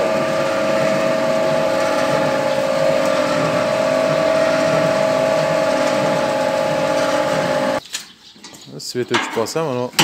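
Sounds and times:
mixer motor whining steadily: 0.0s - 7.8s.

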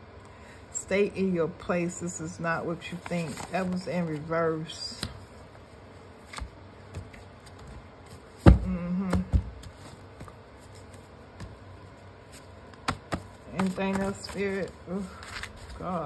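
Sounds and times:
cards shuffled in hands: 9.6s - 16.0s.

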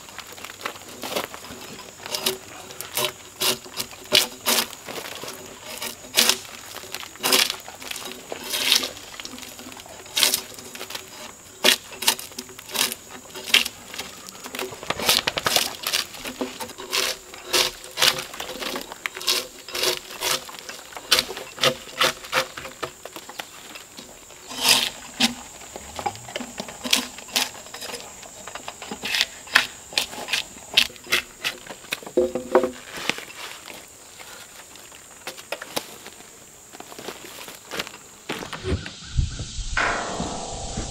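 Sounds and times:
drawknife scraping bark: 2.0s - 6.6s, 10.2s - 23.0s, 24.4s - 25.4s.

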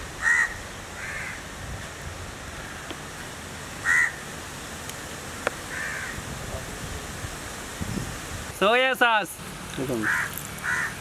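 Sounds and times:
low hiss: 0.0s - 11.0s
crow cawing: 0.2s - 1.4s, 3.8s - 4.2s, 5.7s - 6.2s, 10.0s - 11.0s.

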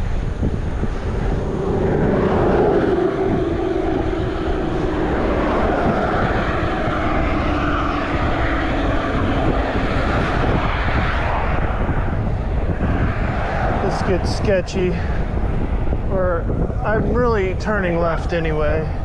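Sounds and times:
distant engine droning: 0.0s - 19.0s
wind buffeting microphone: 0.0s - 19.0s.

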